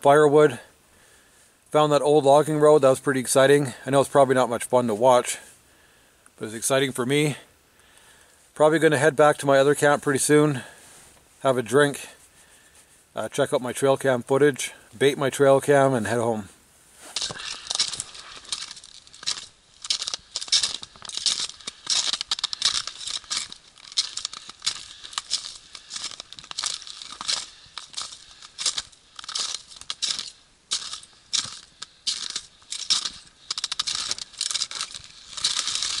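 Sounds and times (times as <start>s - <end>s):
footsteps crunching in snow: 15.6s - 36.0s.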